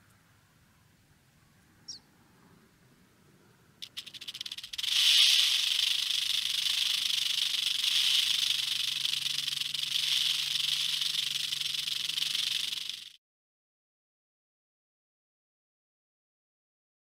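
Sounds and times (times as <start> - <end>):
rattlesnake rattle buzzing: 3.8 - 13.2.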